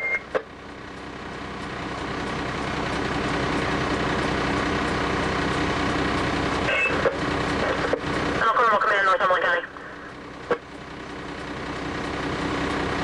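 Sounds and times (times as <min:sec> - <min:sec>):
diesel engine droning: 0:00.0 - 0:13.0
short radio chirps: 0:06.7 - 0:07.1.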